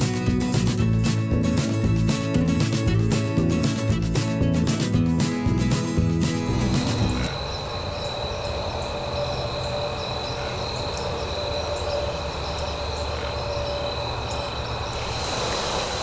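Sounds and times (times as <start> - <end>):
wind rumbling on microphone: 6.6 - 16.0
faint chirps: 7.0 - 16.0.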